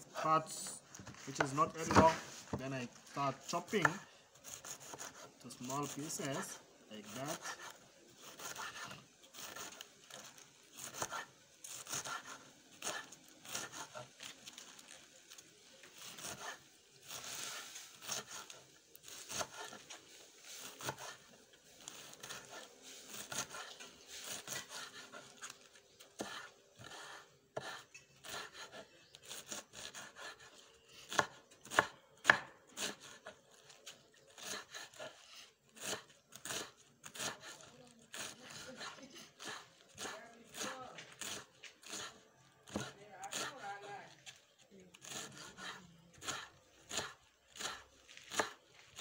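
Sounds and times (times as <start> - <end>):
knife chopping kale: 3.6 - 14.9, 16.0 - 20.0, 20.6 - 30.5, 31.1 - 44.4, 45.0 - 49.0.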